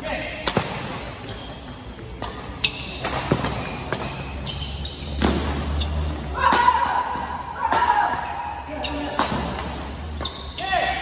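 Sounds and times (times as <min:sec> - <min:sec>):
rackets hitting shuttlecock: 0:00.3 - 0:10.6.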